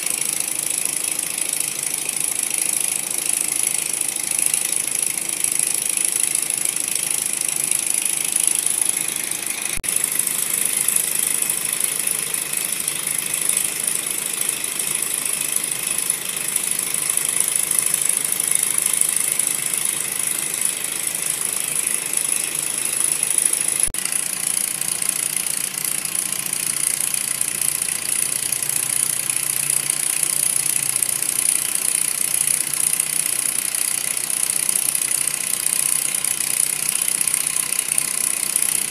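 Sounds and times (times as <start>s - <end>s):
model engine whirring: 0.0s - 38.9s.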